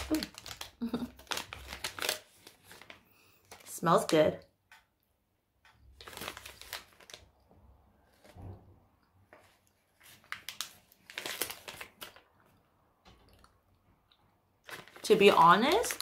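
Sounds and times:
plastic wrapper crinkling: 0:00.0 - 0:04.0, 0:05.9 - 0:07.4, 0:09.3 - 0:12.6, 0:14.6 - 0:16.0.

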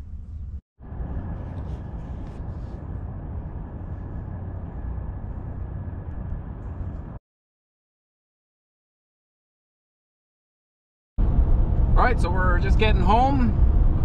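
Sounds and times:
engine rumble: 0:00.0 - 0:07.2, 0:11.2 - 0:14.0.

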